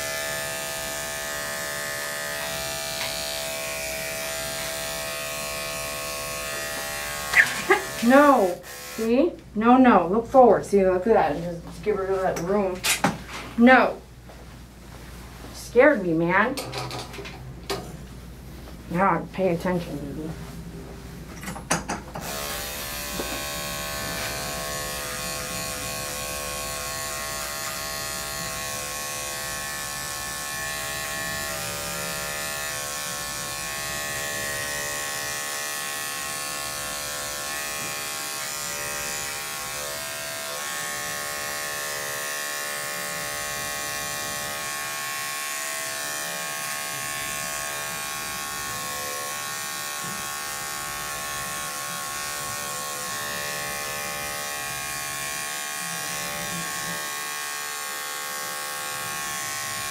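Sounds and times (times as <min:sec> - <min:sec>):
electric clippers buzzing: 0:00.0 - 0:09.3, 0:22.2 - 0:59.9.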